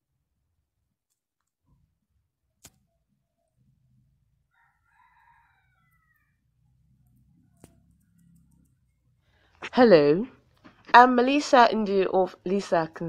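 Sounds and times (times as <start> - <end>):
faint rooster crow: 4.4 - 8.4
faint clicks: 7.0 - 8.9.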